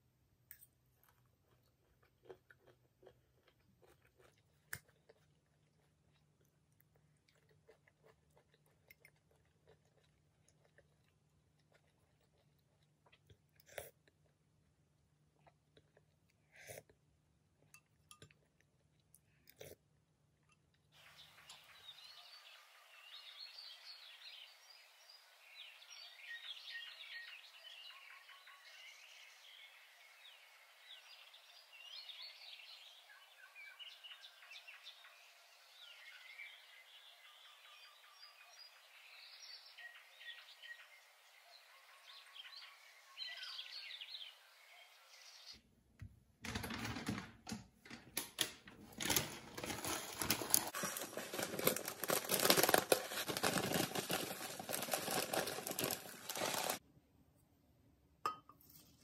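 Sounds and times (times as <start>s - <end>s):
small birds chirping: 20.9s - 45.6s
plastic packet rustling: 48.8s - 56.8s.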